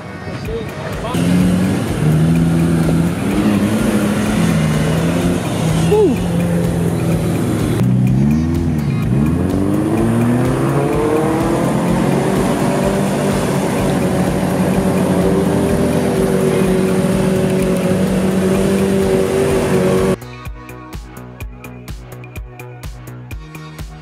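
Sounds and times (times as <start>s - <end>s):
music with a steady beat: 0.0s - 24.0s
car engine revving in mud: 1.1s - 20.2s.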